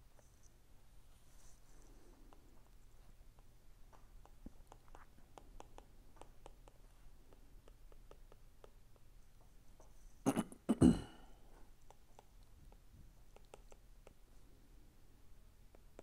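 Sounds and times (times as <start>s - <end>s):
person clearing throat: 10.2s - 11.3s.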